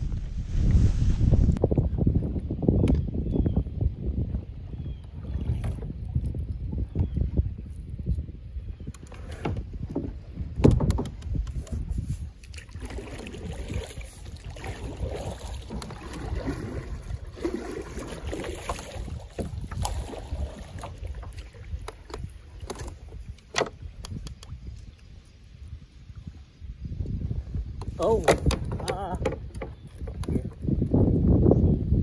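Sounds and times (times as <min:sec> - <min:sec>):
low rumble: 0:00.0 - 0:02.4
paddle splashing through water: 0:11.3 - 0:24.7.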